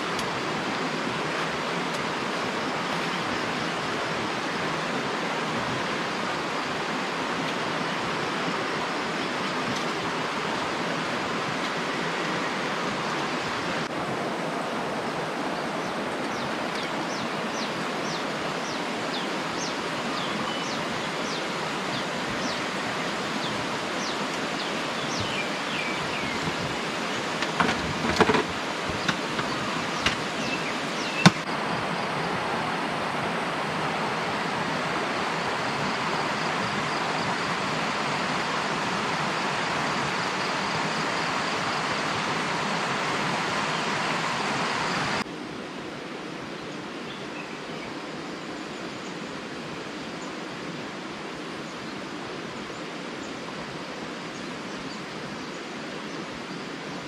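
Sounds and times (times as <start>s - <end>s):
river rushing over rocks: 0.0s - 57.0s
camping gear knocks: 27.4s - 30.3s, 31.2s - 31.4s.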